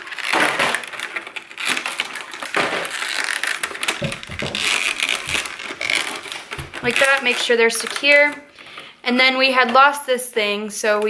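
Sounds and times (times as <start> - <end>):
plastic crinkling: 0.0 - 9.9
soft knocks: 4.0 - 5.5.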